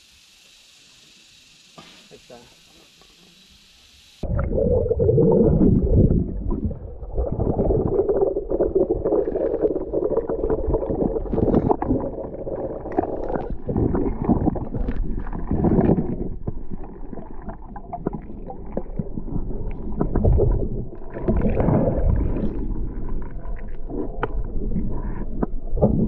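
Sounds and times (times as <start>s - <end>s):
quiet hiss: 0.0s - 4.3s
underwater rumbling and gurgling: 4.2s - 26.0s.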